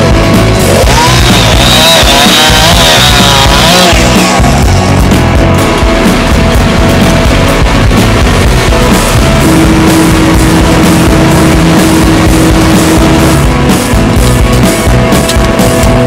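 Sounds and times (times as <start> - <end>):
loud rock music: 0.0 - 16.0.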